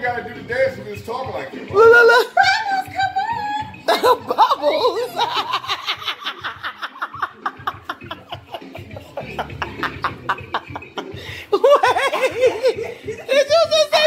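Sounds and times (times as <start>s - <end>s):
people laughing: 3.8s - 14.0s.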